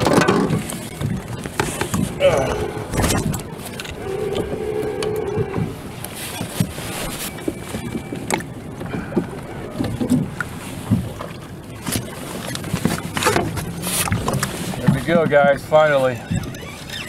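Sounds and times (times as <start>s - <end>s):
water wash: 0.0s - 17.0s
brief steady tone: 4.0s - 5.7s.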